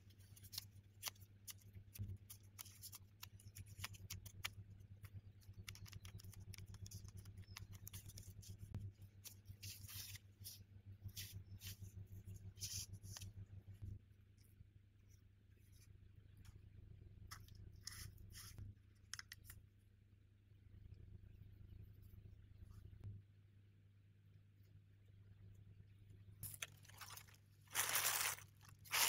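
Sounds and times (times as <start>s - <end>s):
low steady hum: 0.0s - 29.0s
plastic gloves crinkling: 26.4s - 29.0s.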